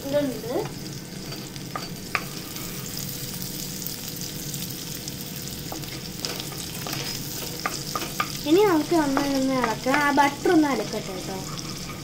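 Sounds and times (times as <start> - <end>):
garlic and butter sizzling in oil: 0.0 - 12.0
spatula tapping pan: 5.7 - 10.8.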